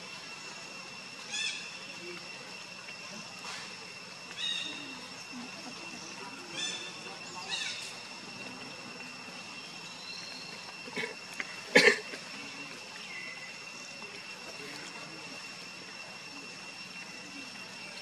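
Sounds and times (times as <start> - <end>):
high insect drone: 0.0 - 18.0
monkey cough-like grunt: 10.9 - 12.3.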